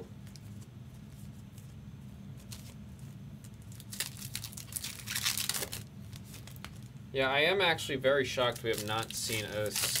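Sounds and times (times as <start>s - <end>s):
steady low hum: 0.0s - 10.0s
card pack crinkle: 2.4s - 7.0s, 8.4s - 10.0s
trading cards rustling and clicking: 8.5s - 10.0s.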